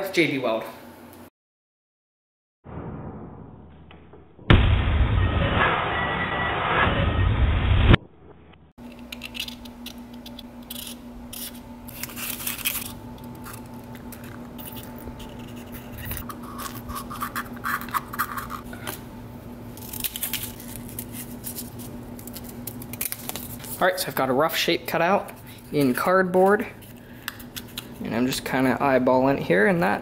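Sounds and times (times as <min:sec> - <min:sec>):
loud crash: 0:02.7 - 0:08.0.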